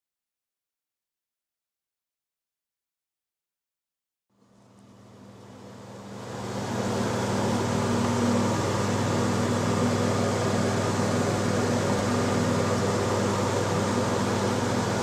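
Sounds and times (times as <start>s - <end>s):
ceiling fan motor hum: 4.4s - 15.0s
rush of air from blades: 6.3s - 15.0s.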